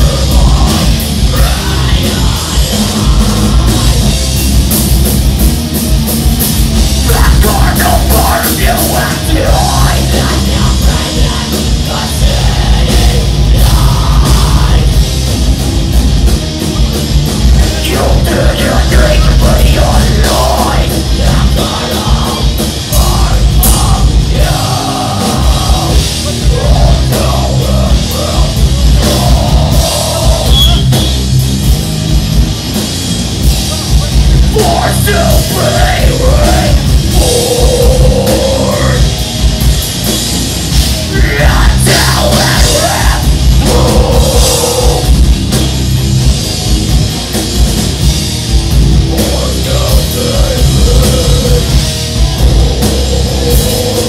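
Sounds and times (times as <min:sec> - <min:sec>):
person singing over band: 0:00.0 - 0:04.1, 0:07.0 - 0:15.0, 0:17.6 - 0:31.2, 0:34.5 - 0:39.1, 0:41.1 - 0:45.2, 0:49.0 - 0:51.9
heavy metal band playing: 0:00.0 - 0:54.0.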